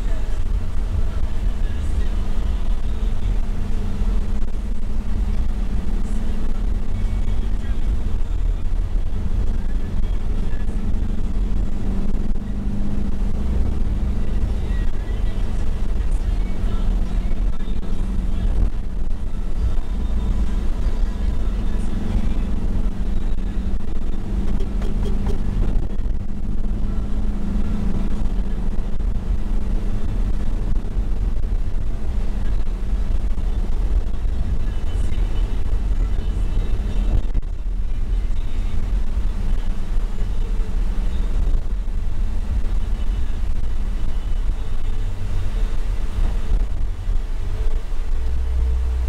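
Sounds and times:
road rumble: 0.0 - 49.0
van engine hum: 0.0 - 49.0.

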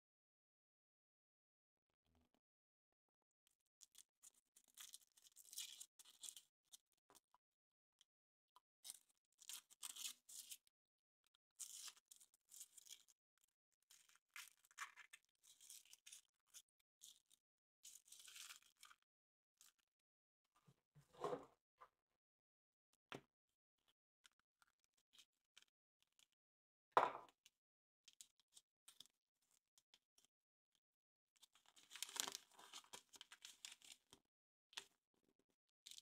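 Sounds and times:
foil wrapper crinkling: 31.9 - 33.9.

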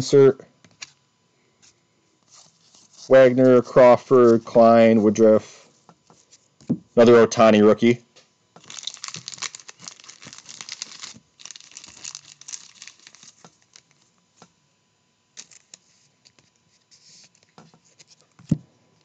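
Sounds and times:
crinkling wrapping: 8.6 - 14.5, 15.4 - 18.3.

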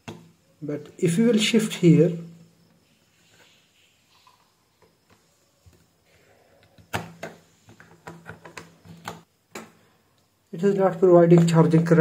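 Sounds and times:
plastic clicks and knocks: 6.7 - 9.8.

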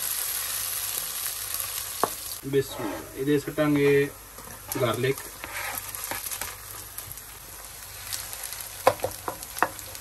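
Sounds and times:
onions sizzling in oil: 0.0 - 10.0
wooden spoon stirring: 4.4 - 6.6
spoon knocking against pan: 8.8 - 9.8.

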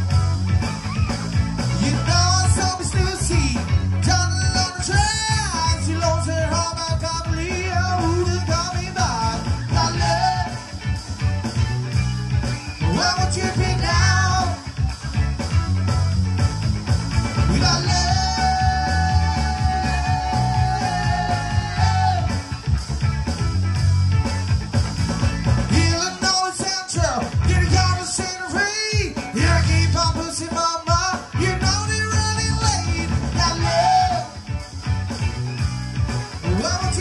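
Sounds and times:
bass beat: 0.0 - 37.0
guitar: 0.0 - 37.0
live pop-rock band: 0.0 - 37.0
person singing: 1.8 - 10.9, 12.8 - 14.9, 17.5 - 22.6, 25.7 - 34.5.

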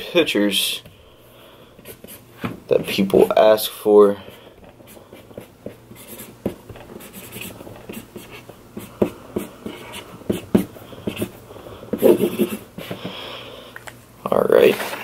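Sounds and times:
pen scratching on paper: 4.9 - 13.0.

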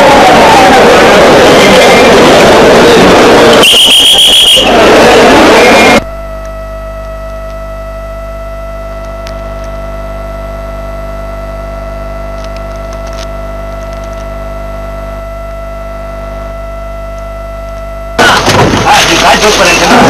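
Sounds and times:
electronic hum with buzz: 0.0 - 18.9
faint pitched tone: 3.6 - 12.5.

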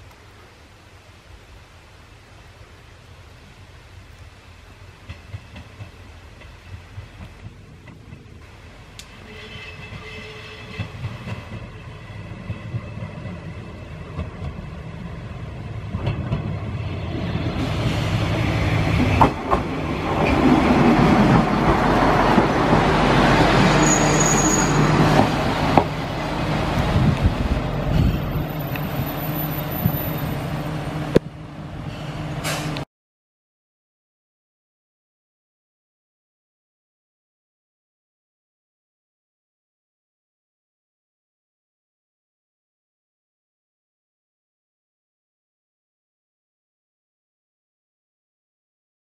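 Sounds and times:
diesel railcar engine: 0.2 - 32.8
train wheels on rails: 4.7 - 32.8
high squeal: 23.6 - 25.0.

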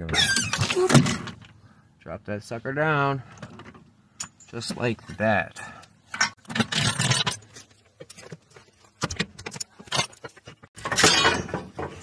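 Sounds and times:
metal tools clinking and rattling: 3.4 - 4.8, 5.6 - 8.4, 9.1 - 12.0.

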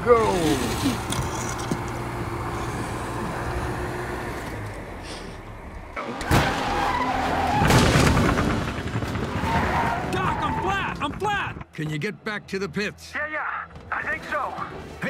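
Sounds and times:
tires skidding: 0.0 - 11.1
race cars on a track: 0.0 - 11.7
sudden loud bang: 7.5 - 8.9.

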